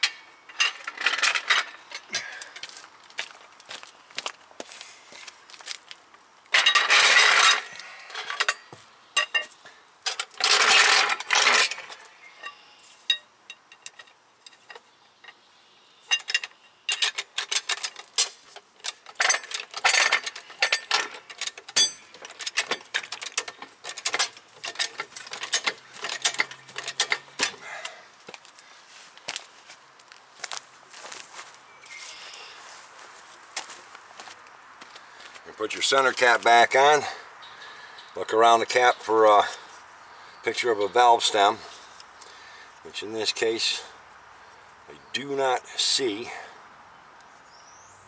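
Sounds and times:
metallic clicks and rattles: 6.5 - 15.4, 16.1 - 28.0.

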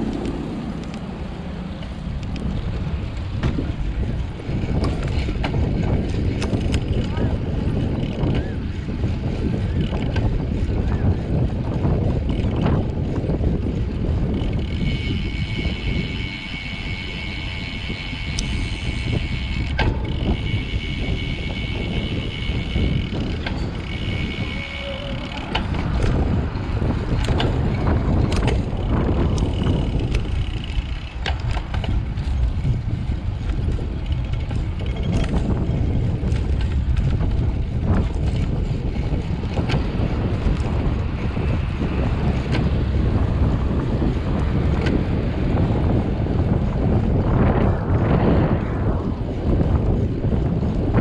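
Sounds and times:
road and tyre noise: 0.0 - 51.0
wind buffeting microphone: 0.0 - 51.0
high two-tone whine: 14.8 - 26.1.

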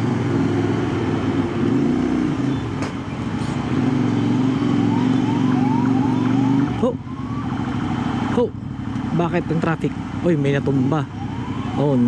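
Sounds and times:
motorcycle engine at low revs: 0.0 - 12.0.

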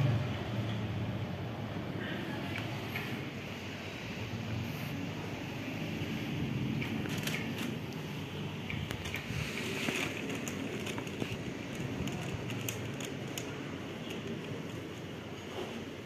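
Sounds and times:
plastic bag crinkling: 8.8 - 15.3.

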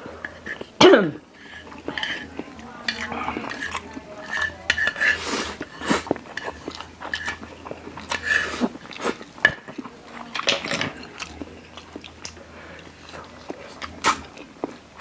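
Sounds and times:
chewing: 0.1 - 15.0
slurping noodles: 2.9 - 9.3.

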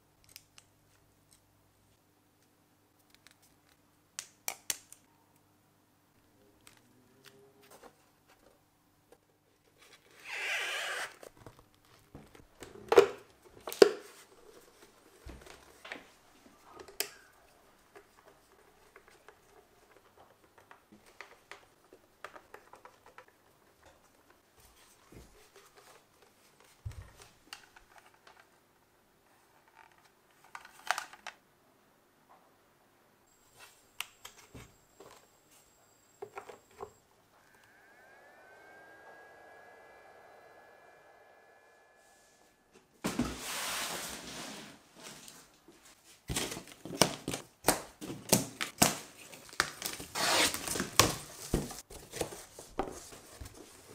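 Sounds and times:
small clicks and knocks of parts: 0.2 - 1.5.

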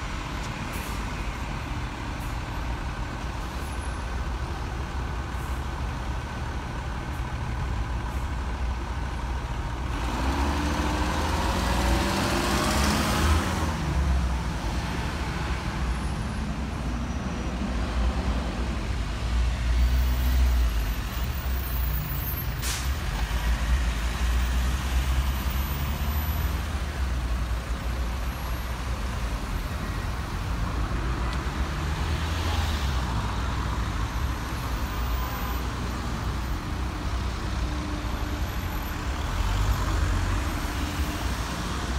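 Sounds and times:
bus and car engines rumbling: 0.0 - 41.9
vehicle accelerating: 9.9 - 14.2
air brake hisses: 22.5 - 23.0.

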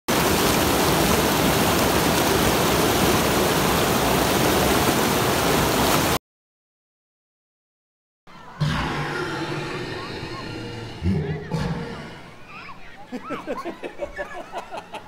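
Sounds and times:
rushing white water: 0.1 - 6.2.

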